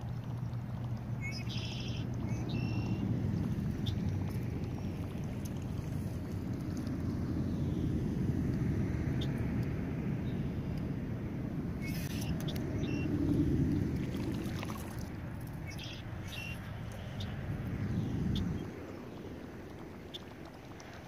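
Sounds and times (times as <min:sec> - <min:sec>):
low outdoor rumble: 0:00.0 - 0:21.0.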